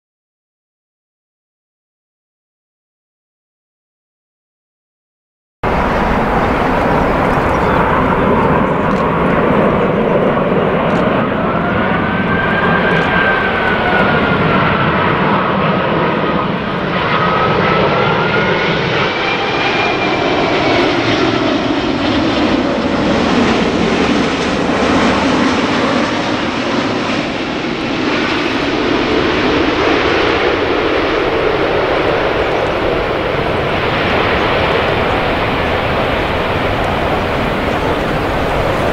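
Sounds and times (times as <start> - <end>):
jet airliner roar overhead: 5.6 - 38.9
whining engine tone: 5.7 - 15.4.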